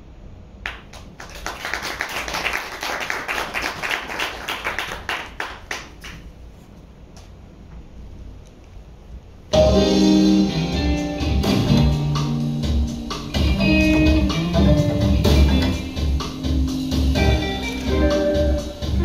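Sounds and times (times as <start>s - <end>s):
audience clapping: 0.6s - 6.4s.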